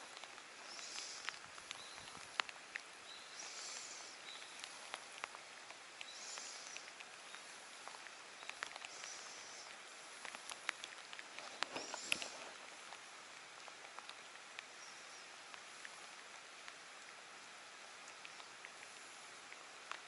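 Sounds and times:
light rain on water: 0:00.0 - 0:20.0
soft high hiss: 0:00.0 - 0:20.0.

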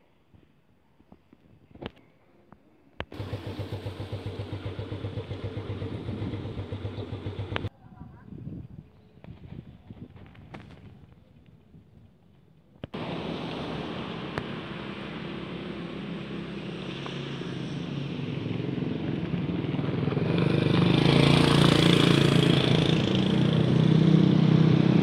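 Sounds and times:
vehicle engine with road noise: 0:03.1 - 0:07.7, 0:12.9 - 0:25.0.

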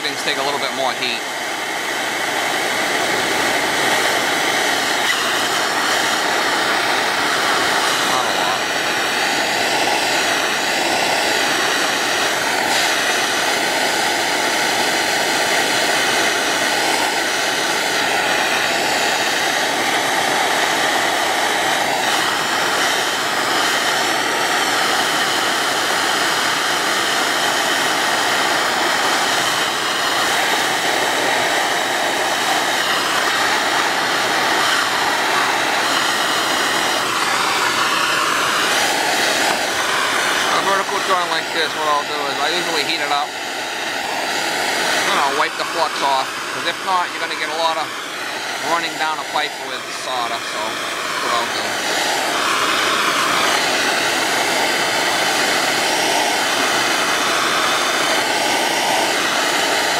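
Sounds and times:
torch flame hissing: 0:00.0 - 0:59.9.

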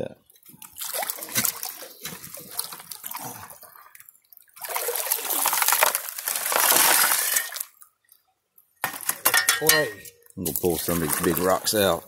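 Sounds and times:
water sloshing and splashing: 0:00.2 - 0:12.0
shovel scooping gravel and rocks: 0:05.4 - 0:07.7.

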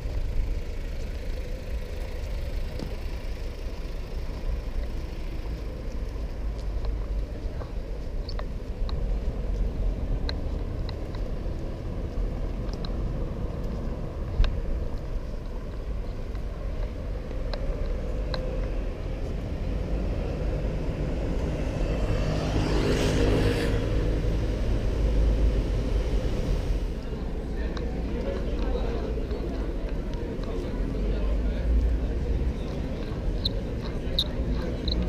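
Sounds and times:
low city street rumble: 0:00.0 - 0:35.0
vehicle passing: 0:18.4 - 0:27.2.

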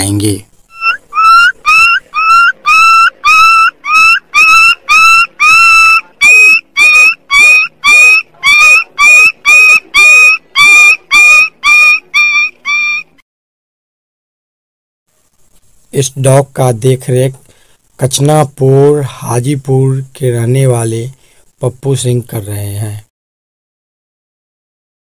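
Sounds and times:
young dog yelping: 0:00.7 - 0:13.1.

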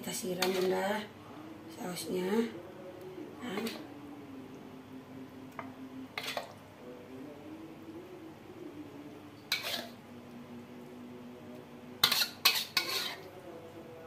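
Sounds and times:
faint steady hum: 0:00.0 - 0:14.0
metal spoon scraping ceramic plate: 0:00.3 - 0:00.8, 0:03.5 - 0:03.8, 0:06.2 - 0:06.6, 0:09.5 - 0:10.0, 0:12.0 - 0:13.3.

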